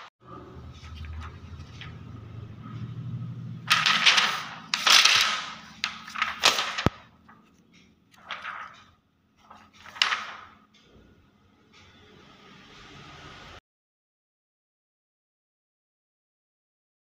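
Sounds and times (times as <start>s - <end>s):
plastic film crackling: 3.7s - 7.5s, 8.1s - 8.8s, 9.5s - 10.6s.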